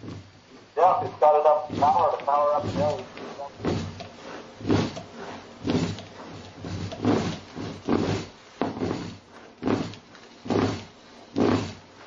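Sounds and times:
wire scraping while wound by hand: 2.7s - 12.0s.

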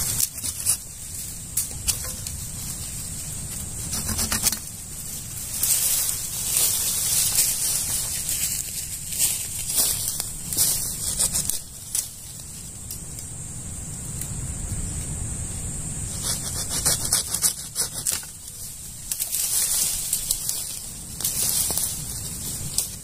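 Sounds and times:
twigs and leaves crackling: 0.0s - 15.2s, 17.1s - 23.0s
wind rumble on microphone: 0.0s - 17.4s.

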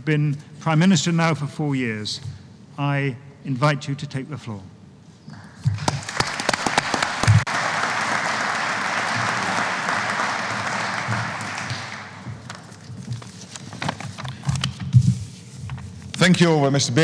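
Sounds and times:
audience applauding: 5.8s - 12.8s.

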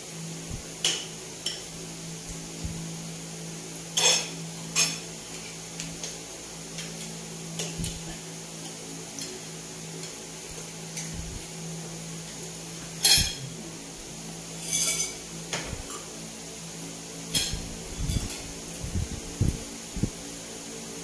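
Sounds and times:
steady low hum: 0.0s - 21.0s
cutlery clinking against a plate: 0.8s - 1.7s, 3.9s - 9.4s, 12.3s - 13.5s, 14.6s - 16.1s, 17.3s - 18.5s.

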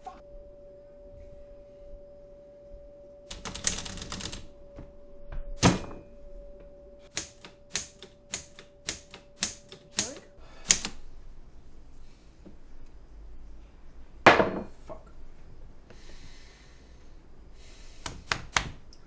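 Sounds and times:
manual typewriter keystrokes: 3.3s - 4.5s, 7.1s - 11.0s.

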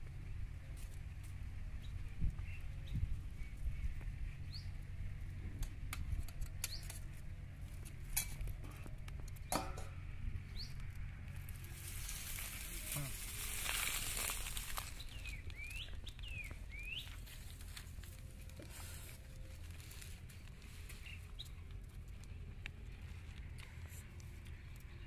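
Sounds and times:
rustling hiss: 11.4s - 15.4s.

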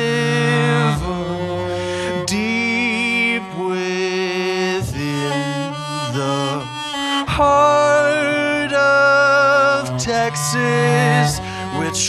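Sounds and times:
cello bowed with vibrato: 0.0s - 12.0s.

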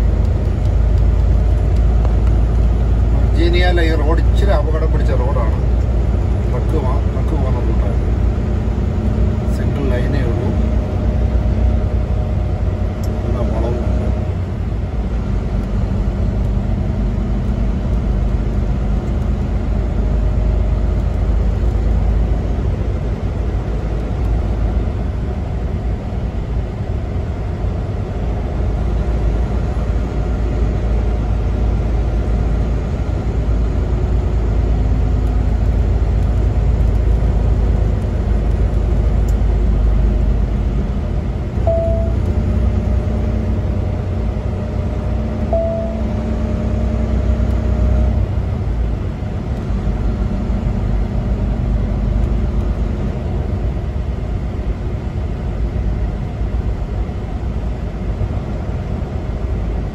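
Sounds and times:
truck engine and road rumble: 0.0s - 59.9s
short tone: 41.6s - 42.3s, 45.5s - 46.5s.

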